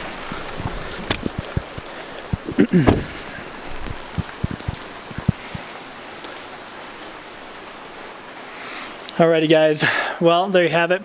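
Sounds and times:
soft low thumps: 0:00.0 - 0:05.6
rain on concrete: 0:00.0 - 0:11.0.

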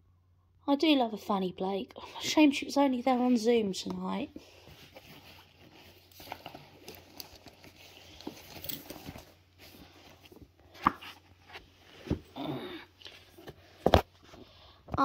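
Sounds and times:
books rustling: 0:03.0 - 0:14.7.

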